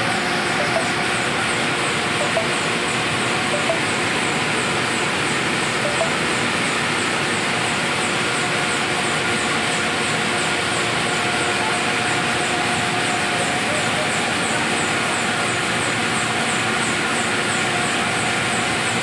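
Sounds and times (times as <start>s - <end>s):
printing press running: 0.0s - 19.0s
faint high ticking: 2.1s - 4.0s.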